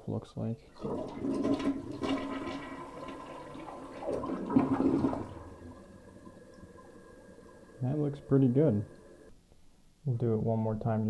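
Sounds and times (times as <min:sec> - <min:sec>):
toilet flushing: 0:00.7 - 0:09.3.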